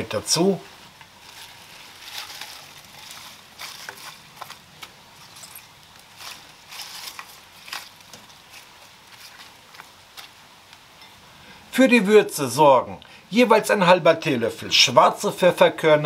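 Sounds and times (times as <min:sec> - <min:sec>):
leafy greens rustling: 0:00.0 - 0:10.8.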